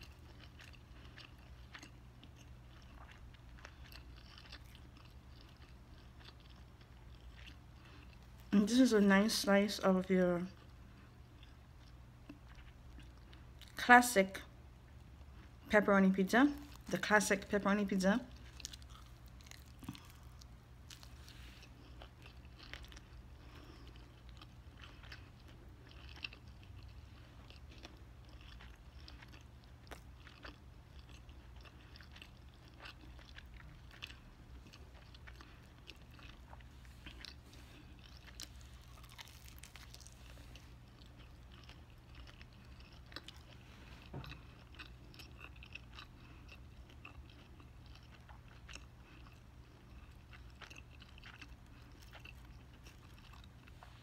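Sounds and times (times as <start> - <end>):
person chewing: 0.0 - 8.5, 10.6 - 13.8, 16.6 - 17.0, 18.3 - 54.0
pizza crust crunching: 18.4 - 46.1.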